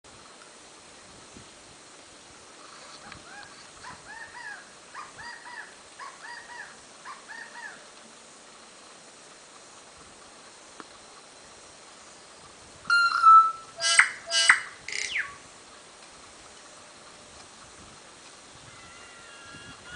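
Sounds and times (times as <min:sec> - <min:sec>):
bird singing arching notes: 0:11.1 - 0:15.5.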